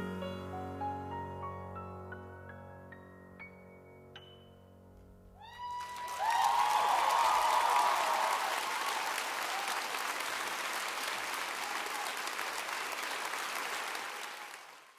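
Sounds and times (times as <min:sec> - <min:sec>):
audience applauding: 0:05.5 - 0:14.9.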